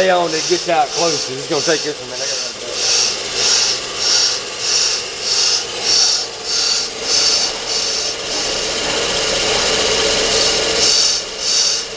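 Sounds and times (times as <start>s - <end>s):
cutting bit scraping spinning drum: 0.0s - 11.9s
lathe humming: 0.0s - 11.9s.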